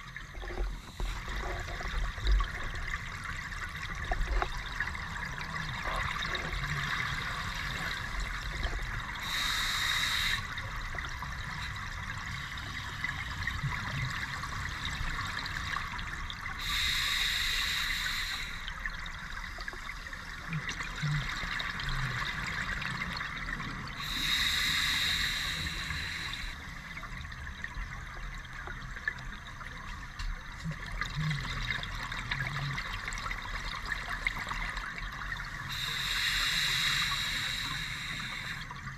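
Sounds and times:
underwater hiss and rumble: 0:00.0 - 0:38.9
exhaled bubbles underwater: 0:18.1 - 0:38.9.

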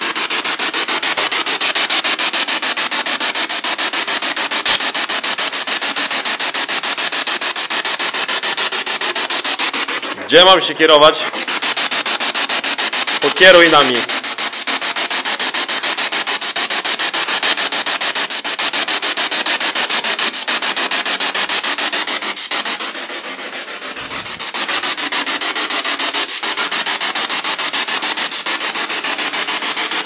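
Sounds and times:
radio static hiss: 0:13.2 - 0:14.2.

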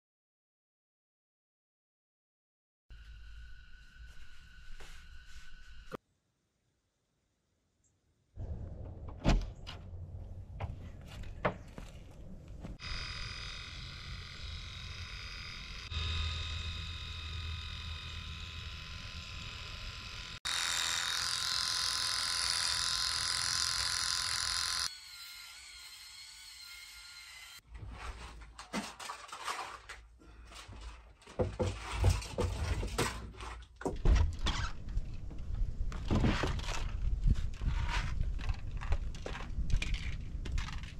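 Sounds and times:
electric shaver buzzing: 0:03.0 - 0:05.9, 0:12.8 - 0:27.6
footsteps: 0:04.0 - 0:06.0, 0:09.8 - 0:12.8
knocks and clunks: 0:08.4 - 0:12.0, 0:30.7 - 0:34.5.

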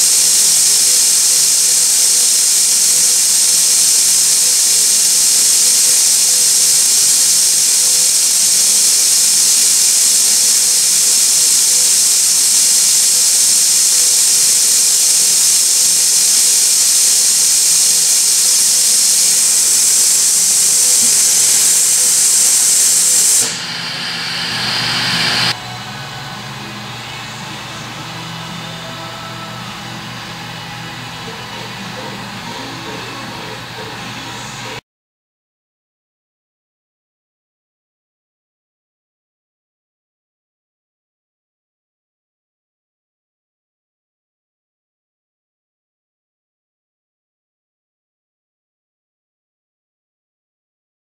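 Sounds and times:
machine hissing: 0:00.0 - 0:25.6.

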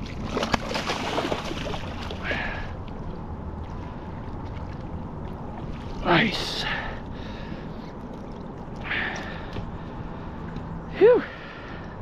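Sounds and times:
fish splashing in water: 0:00.0 - 0:02.7.

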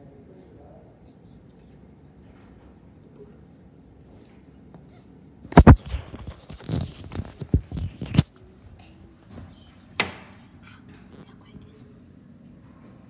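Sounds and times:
sharp click: 0:05.5 - 0:08.3
phone rubbing against fabric: 0:05.5 - 0:08.5.

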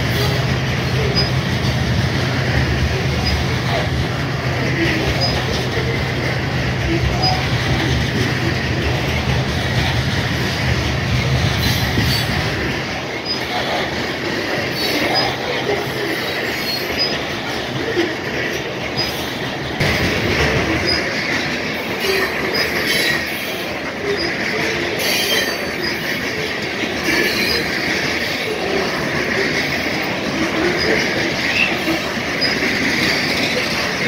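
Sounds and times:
wheel squeals: 0:00.0 - 0:01.7, 0:02.9 - 0:03.9, 0:04.8 - 0:05.9, 0:06.8 - 0:08.3, 0:11.2 - 0:12.5, 0:13.1 - 0:13.8, 0:14.6 - 0:18.0, 0:21.8 - 0:34.0
freight train rolling past: 0:00.0 - 0:34.0.

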